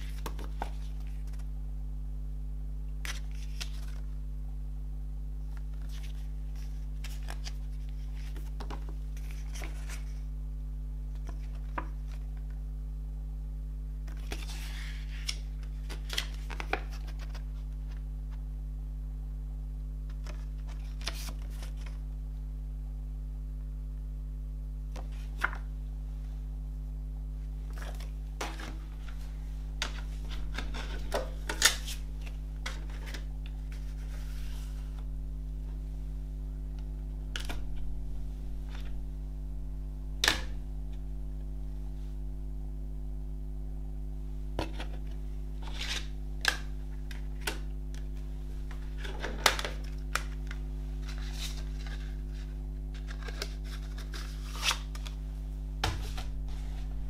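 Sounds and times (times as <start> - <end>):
paper rustles: 0.0 - 1.5, 3.0 - 4.1, 5.5 - 10.3, 14.1 - 18.4, 27.7 - 36.1, 48.7 - 55.1
low electrical hum: 0.0 - 57.0.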